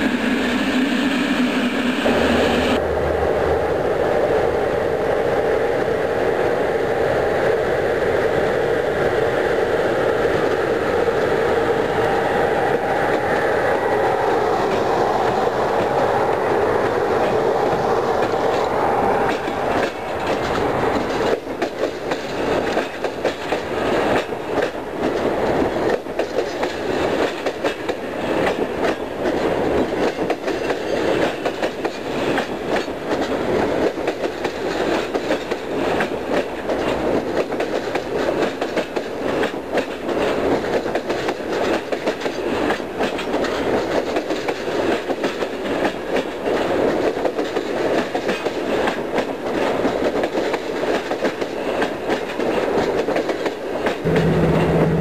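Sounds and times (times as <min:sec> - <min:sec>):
electric locomotive humming: 0:00.0 - 0:32.8, 0:45.6 - 0:55.0
train wheels clattering over rail joints: 0:19.3 - 0:55.0.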